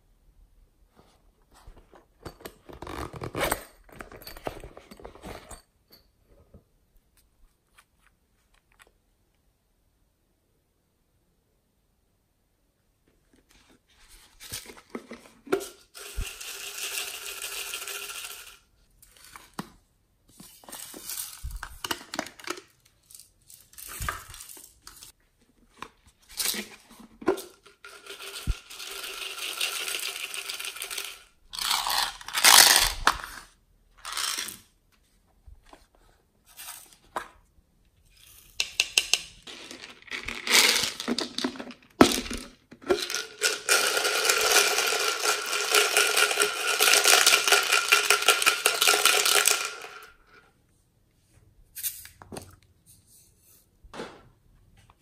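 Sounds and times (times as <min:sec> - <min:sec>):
plastic beads rattling and pouring: 0:15.5 - 0:19.6, 0:20.6 - 0:25.1, 0:27.3 - 0:34.7, 0:38.2 - 0:50.2.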